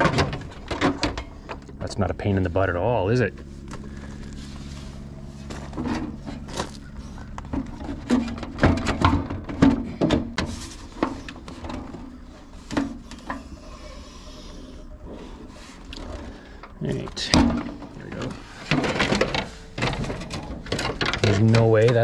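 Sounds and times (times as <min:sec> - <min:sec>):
low steady hum: 0:00.0 - 0:22.0
sheet metal clunking and scraping: 0:05.5 - 0:13.5, 0:15.6 - 0:22.0.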